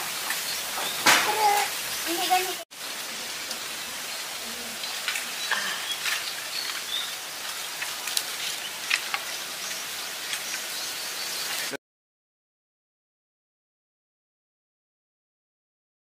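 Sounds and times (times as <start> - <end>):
wood fire crackling: 0.0 - 11.8.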